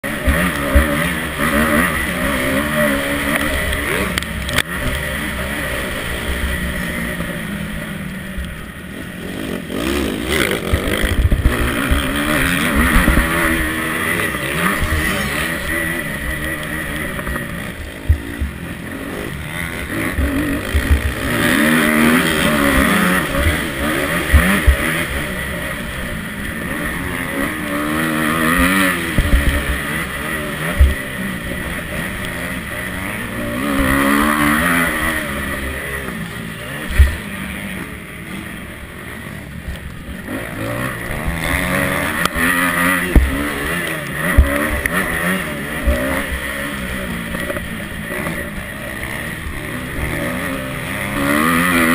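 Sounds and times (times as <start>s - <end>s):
motocross bike engine revving: 0.0s - 51.9s
sharp thumps: 42.1s - 43.6s.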